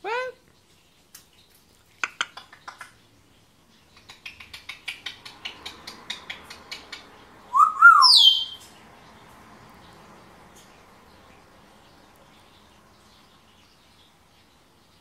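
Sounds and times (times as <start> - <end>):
parrot clicking: 2.0 - 3.0, 3.9 - 7.2
parrot whistle: 7.5 - 8.6.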